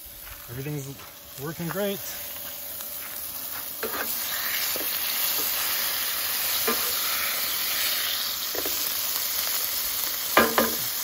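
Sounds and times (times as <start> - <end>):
burger sizzling in a skillet: 0.0 - 11.0
spatula knocking and scraping pan: 10.4 - 10.8.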